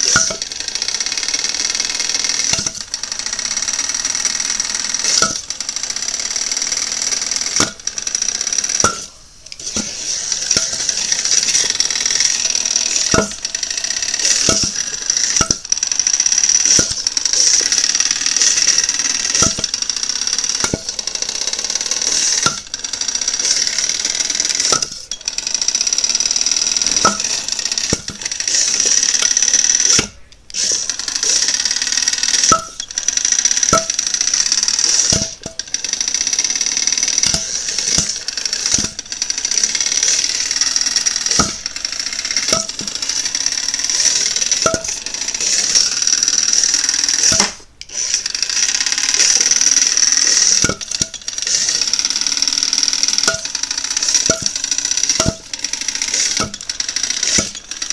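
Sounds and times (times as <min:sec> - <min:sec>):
toy robot spinner motor whining: 0:00.0 - 0:57.9
blade striking knocks: 0:00.1 - 0:00.5, 0:02.5 - 0:02.9, 0:05.1 - 0:05.5, 0:07.5 - 0:07.9, 0:08.8 - 0:13.5, 0:14.2 - 0:15.7, 0:16.7 - 0:17.7, 0:18.4 - 0:19.8, 0:20.6 - 0:21.0, 0:22.1 - 0:22.7, 0:24.6 - 0:25.2, 0:26.9 - 0:28.3, 0:29.2 - 0:30.2, 0:32.4 - 0:33.0, 0:35.0 - 0:35.6, 0:37.2 - 0:39.0, 0:41.3 - 0:41.7, 0:42.4 - 0:43.0, 0:44.1 - 0:45.0, 0:47.2 - 0:47.6, 0:50.6 - 0:51.2, 0:53.2 - 0:53.6, 0:54.2 - 0:55.5, 0:56.2 - 0:56.7, 0:57.3 - 0:57.7.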